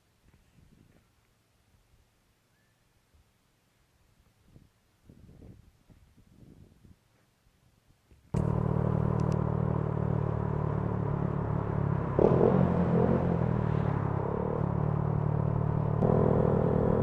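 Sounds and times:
motorcycle engine running: 8.4 - 17.0.

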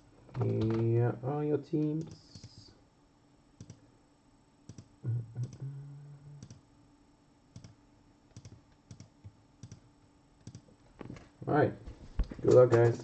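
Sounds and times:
low hum from a voice: 0.0 - 13.0
computer mouse clicking: 3.6 - 3.8, 4.7 - 5.6, 6.4 - 6.6, 7.5 - 10.7.

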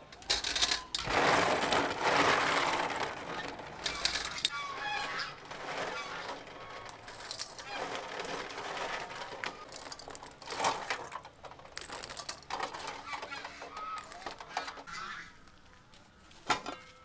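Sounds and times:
egg shells clicking together: 11.2 - 12.6.

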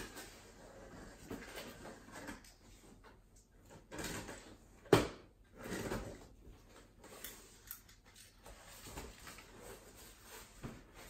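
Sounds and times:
soft cardboard rustles: 8.2 - 11.0.

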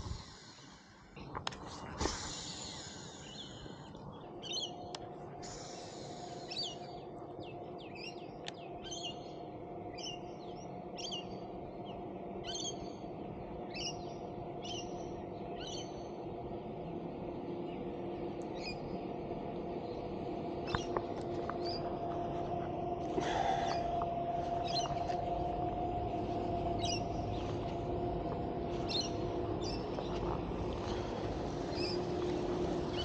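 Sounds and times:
faint steady hum: 0.0 - 33.0
bird calling: 23.2 - 25.3.

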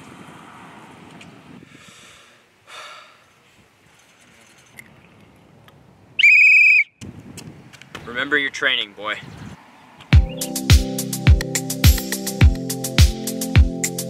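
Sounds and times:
referee's whistle blast: 6.2 - 6.9.

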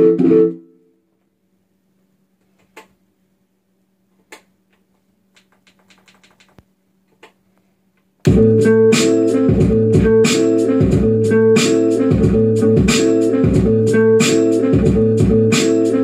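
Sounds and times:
hip-hop beat playing: 8.2 - 16.0.

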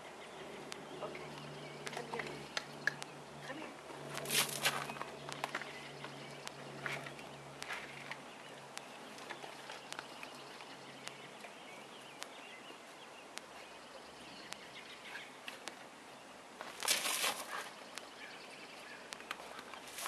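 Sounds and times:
low hum: 0.0 - 15.3
small sharp clicks: 0.7 - 3.1, 11.0 - 11.2.

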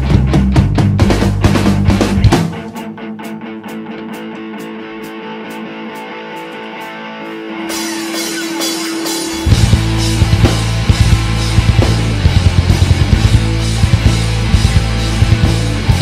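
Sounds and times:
rapid drum hits: 0.0 - 2.9, 7.8 - 16.0
rock band playing: 0.0 - 16.0
electric guitar holding a note: 2.6 - 13.6.

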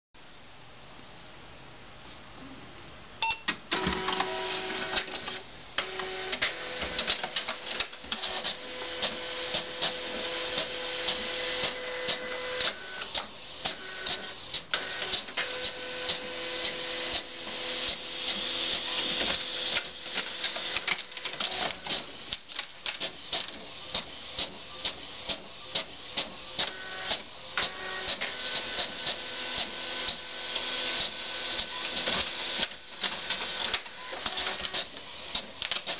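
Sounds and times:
printer motor whirring: 3.7 - 35.9
printer mechanism clicking: 31.0 - 35.9.

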